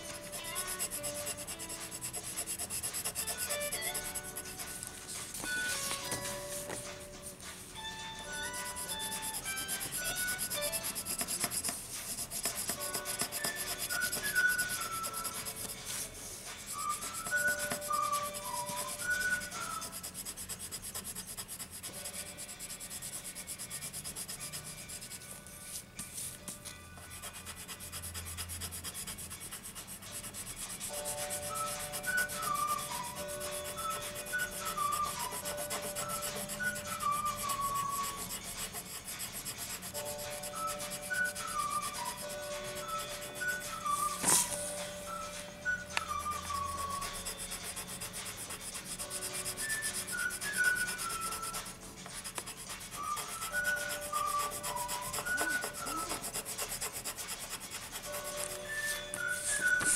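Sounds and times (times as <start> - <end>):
pencil scratching on paper: 0.0 - 59.9.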